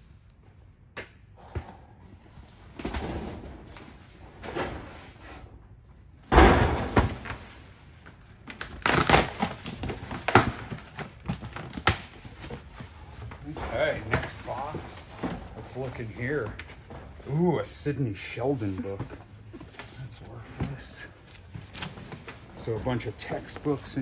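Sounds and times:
belongings rustling and scraping: 10.8 - 24.0.

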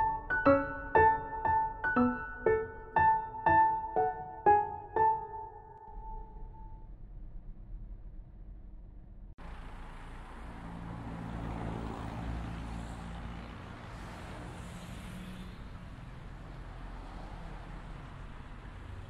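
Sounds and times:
road noise: 0.0 - 6.4, 9.4 - 19.0
vehicle engine rumbling: 9.4 - 12.6.

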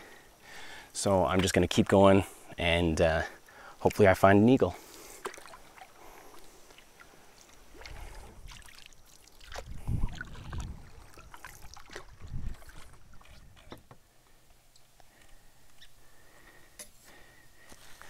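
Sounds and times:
paddle strokes in water: 4.8 - 14.0
water drips and splashes: 4.9 - 13.9.

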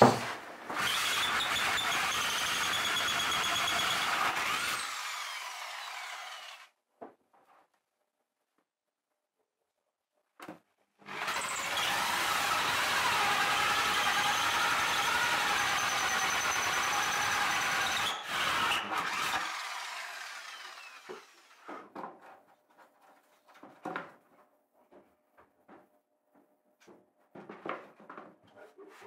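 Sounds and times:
drill hole saw cutting wood: 0.0 - 6.7, 11.1 - 21.7.

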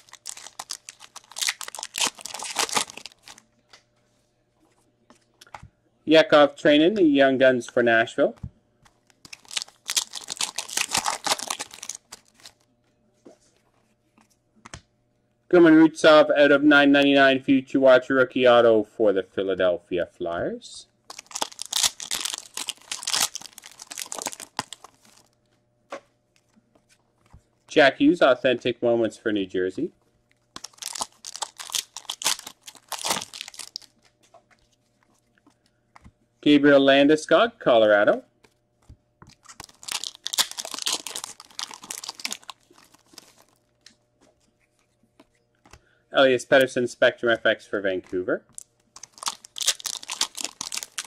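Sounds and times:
foil wrapper crinkling and tearing: 0.0 - 3.4, 9.1 - 12.7, 21.1 - 25.4, 30.5 - 34.2, 39.3 - 43.7, 48.5 - 51.0.

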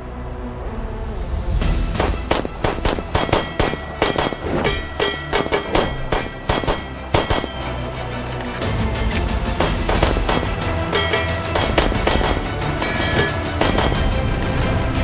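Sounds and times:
background music: 0.0 - 15.0
rapid pistol fire: 2.0 - 4.4, 5.8 - 7.6, 9.6 - 10.6, 11.5 - 12.5, 13.6 - 14.2.

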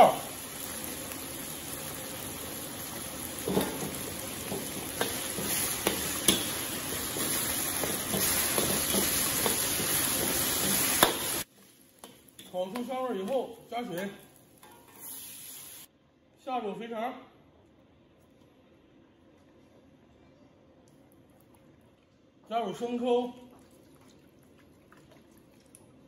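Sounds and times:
spices sizzling in hot oil: 0.0 - 15.9
ladle stirring and scraping: 3.4 - 13.4.

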